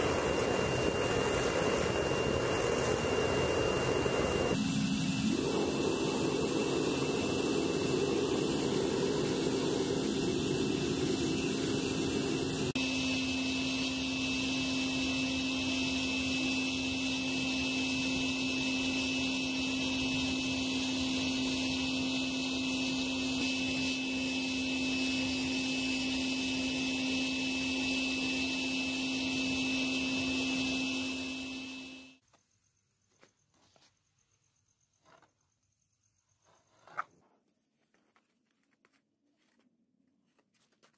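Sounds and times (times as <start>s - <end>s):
gas burner roaring: 0.0s - 32.2s
steady hum: 0.0s - 32.2s.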